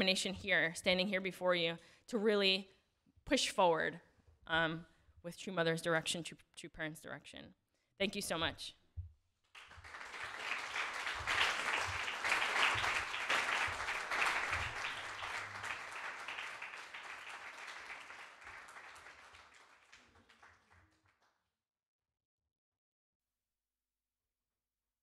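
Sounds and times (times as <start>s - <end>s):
congregation applauding: 9.6s - 21.2s.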